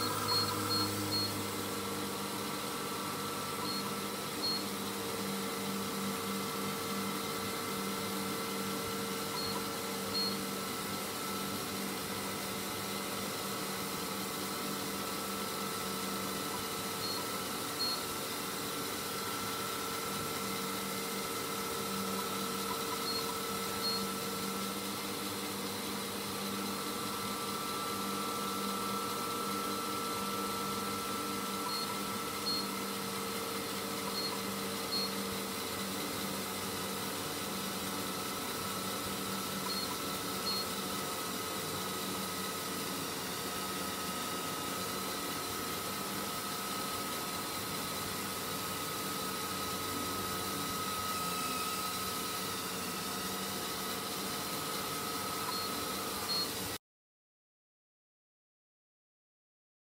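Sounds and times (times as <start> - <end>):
electric motor whine: 0.0 - 56.8
treadmill belt and motor running: 0.0 - 56.8
short high beeps: 0.1 - 1.4.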